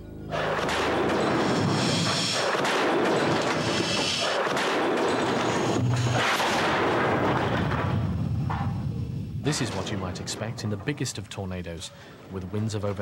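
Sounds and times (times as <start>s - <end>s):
compressed-air cannon blasts: 0.3s - 9.1s
debris crashing into walls: 0.4s - 8.2s.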